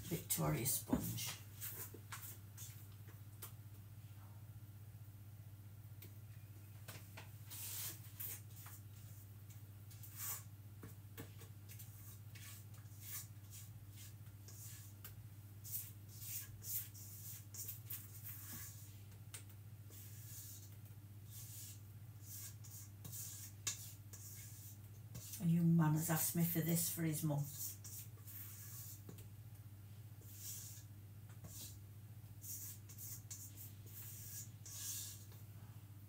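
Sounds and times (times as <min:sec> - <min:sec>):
spatula scraping mixing bowl: 0:19.9 - 0:29.2, 0:30.2 - 0:31.8, 0:32.4 - 0:35.4.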